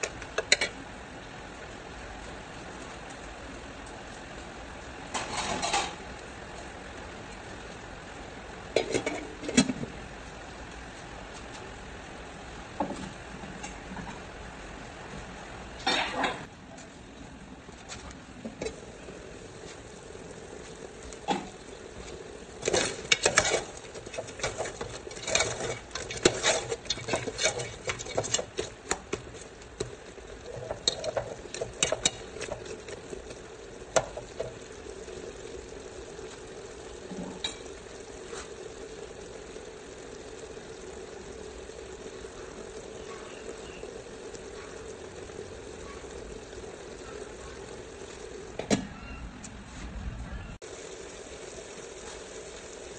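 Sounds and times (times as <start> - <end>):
sauce sizzling: 18.2 - 48.6, 50.6 - 52.9
spatula scraping metal pot: 22.6 - 32.8.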